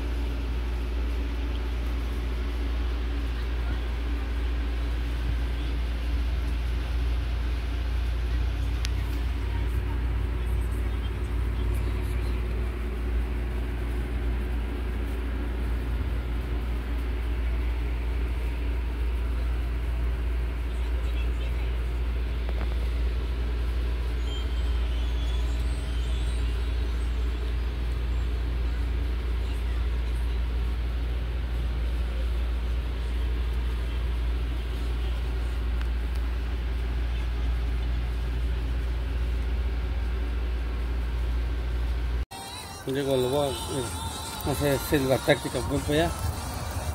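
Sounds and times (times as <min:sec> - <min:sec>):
constant hiss: 0:00.0 - 0:46.9
low machine drone: 0:00.0 - 0:46.9.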